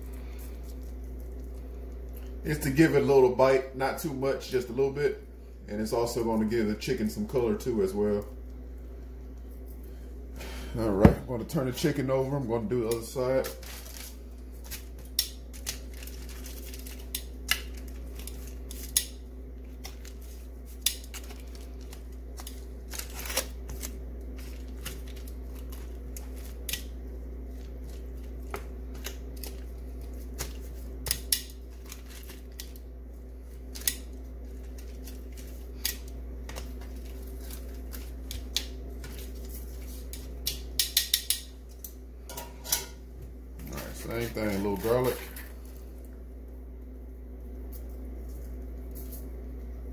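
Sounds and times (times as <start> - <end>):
steady low hum: 0.0 - 49.9
metal tongs clicking on sheet pan: 40.4 - 41.5.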